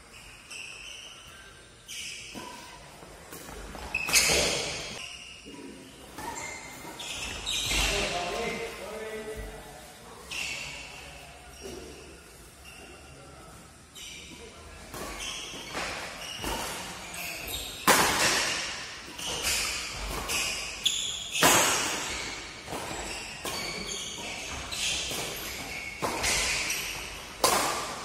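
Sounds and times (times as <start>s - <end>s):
rackets striking shuttlecock: 14.9s - 28.0s.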